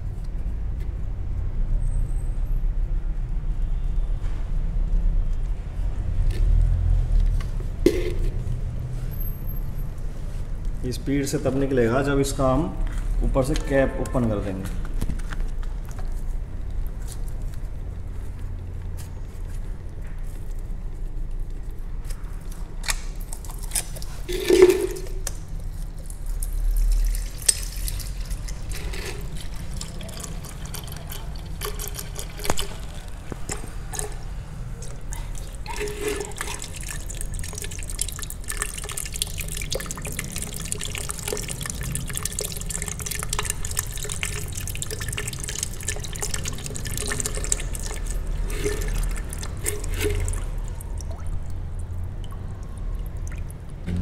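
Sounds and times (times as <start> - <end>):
liquid trickling and splashing: 22.4 - 54.0.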